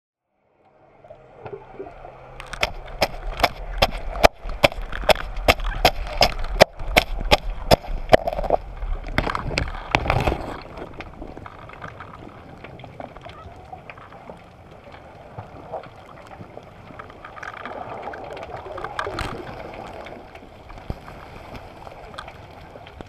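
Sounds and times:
rushing water: 0.5 - 23.0
sharp underwater clicks: 2.4 - 15.0.

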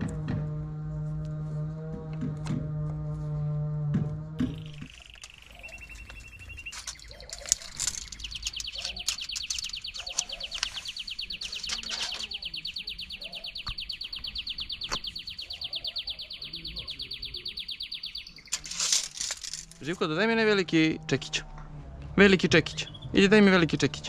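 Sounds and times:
small animal trilling: 4.4 - 13.7
sharp clicks: 4.4 - 15.4.

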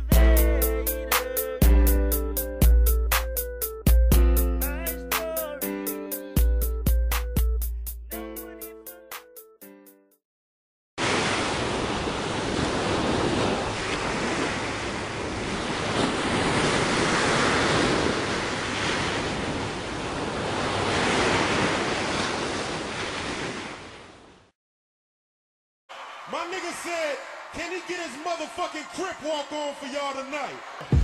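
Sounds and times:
ocean waves rushing: 11.0 - 24.2.

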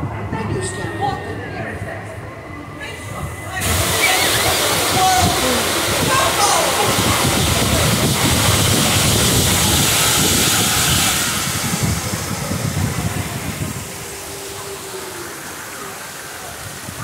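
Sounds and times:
ride vehicle rumbling: 0.0 - 17.0
wind rushing on microphone: 2.8 - 17.0
fountains splashing: 3.6 - 17.0.

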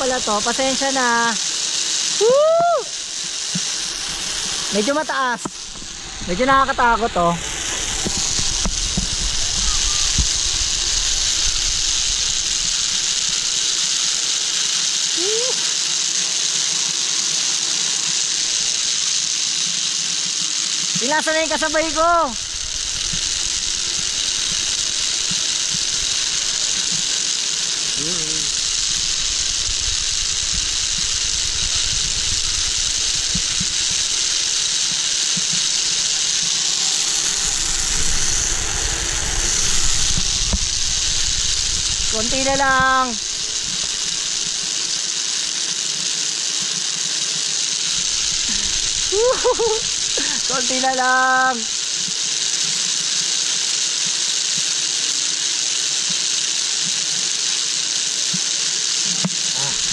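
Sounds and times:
rushing noise of cable ride: 0.0 - 54.9
wind buffeting microphone: 5.6 - 12.9, 37.0 - 44.0.

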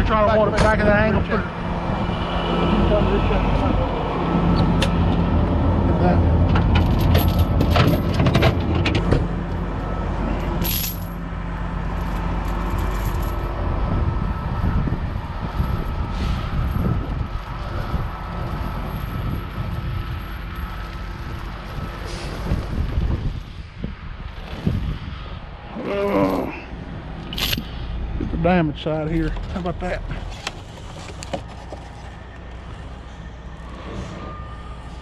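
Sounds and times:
metal chain clinking: 6.8 - 8.1, 10.5 - 11.2, 12.4 - 13.4, 27.3 - 27.7.

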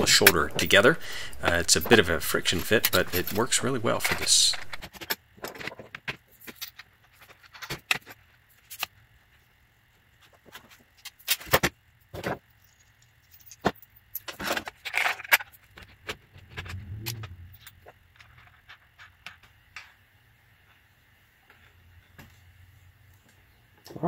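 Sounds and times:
metal parts clinking and knocking: 11.0 - 19.5.

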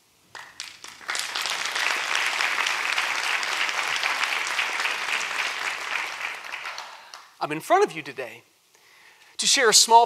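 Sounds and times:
audience applauding: 0.3 - 7.4.

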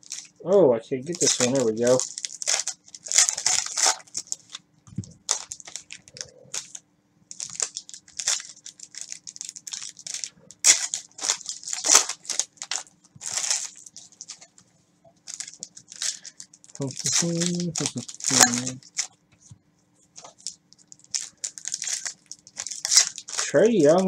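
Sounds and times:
plastic sleeves and cards crinkling: 0.0 - 0.4, 1.0 - 24.0.

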